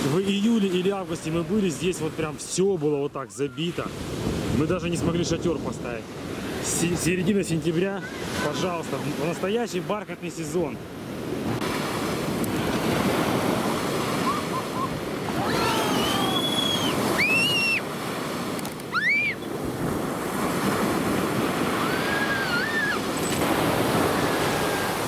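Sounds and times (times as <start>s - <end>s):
waves breaking on beach: 0.0s - 25.0s
short high calls: 14.2s - 17.8s, 18.9s - 19.5s.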